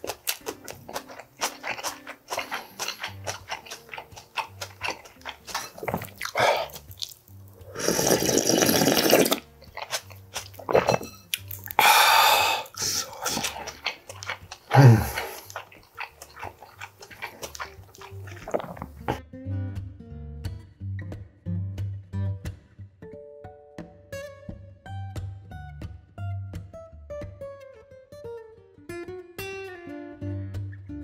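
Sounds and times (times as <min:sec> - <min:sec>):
slurping broth: 0:00.0 - 0:19.2
wet chewing: 0:00.0 - 0:19.2
faint background music: 0:00.0 - 0:31.0
low gulp: 0:05.5 - 0:06.9, 0:07.6 - 0:16.4, 0:17.1 - 0:19.2.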